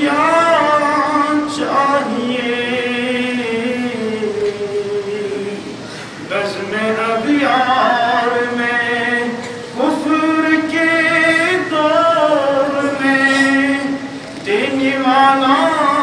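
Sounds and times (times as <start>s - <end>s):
man chanting: 0.0s - 5.7s, 6.3s - 16.0s
breath: 5.8s - 6.2s.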